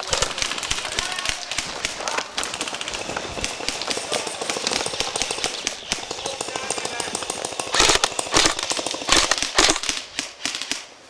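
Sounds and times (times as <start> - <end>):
running footsteps: 0.0 - 8.6
brush crackling: 0.0 - 11.0.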